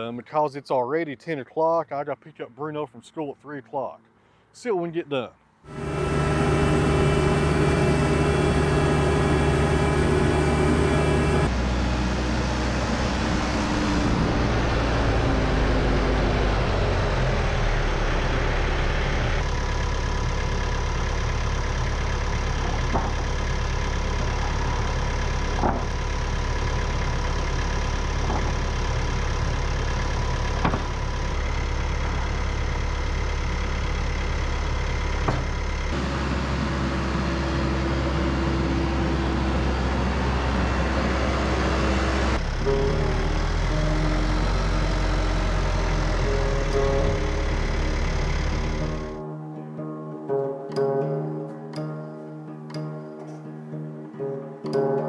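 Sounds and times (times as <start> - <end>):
tractor diesel engine running: 5.6 - 49.2
wooden boards knocking: 22.7 - 23.2, 25.6 - 26.0, 28.2 - 28.6, 30.6 - 31.0, 35.2 - 35.5.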